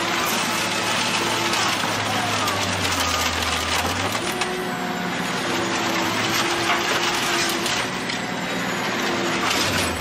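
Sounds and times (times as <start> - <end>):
scrap shredder mechanical din: 0.0 - 10.0.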